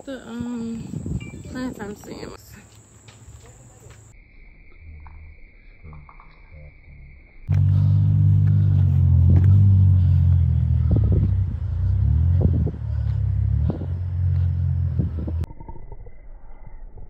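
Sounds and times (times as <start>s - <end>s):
low rumble with droning hum: 7.5s - 15.5s.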